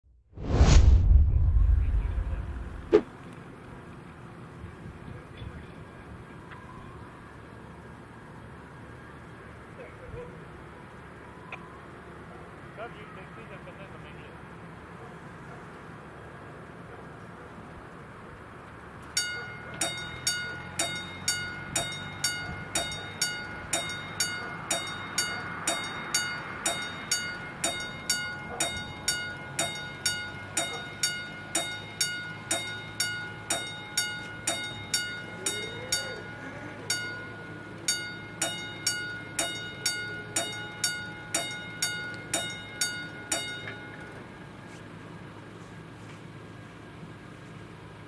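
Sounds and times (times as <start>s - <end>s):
level crossing warning bell: 19.1s - 44.7s.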